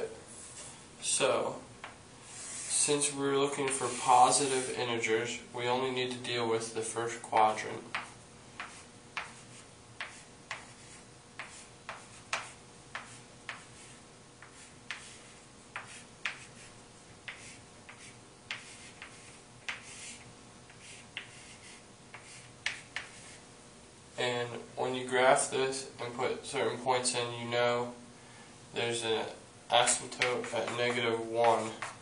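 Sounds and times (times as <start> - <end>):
chalk tapping on chalkboard: 3.6 - 4.7, 7.4 - 16.6, 17.2 - 23.4, 29.9 - 32.0.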